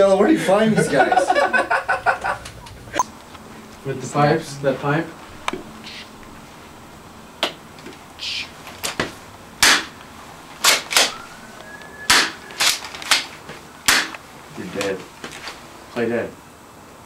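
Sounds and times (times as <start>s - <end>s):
sharp gunshot-like bursts: 9.6s - 9.9s, 13.9s - 14.1s
faint rising whistle: 11.1s - 12.6s.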